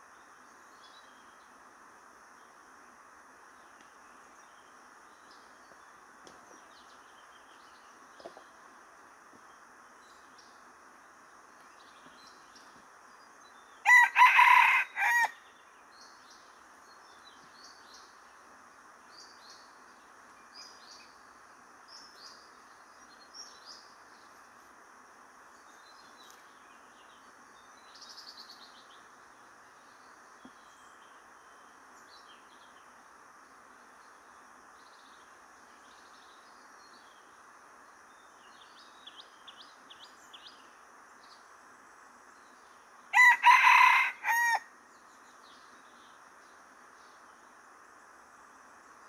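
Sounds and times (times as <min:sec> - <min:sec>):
small birds chirping: 0:00.0 - 0:14.6, 0:15.2 - 0:49.0
rooster crowing: 0:13.8 - 0:15.4, 0:43.1 - 0:44.7.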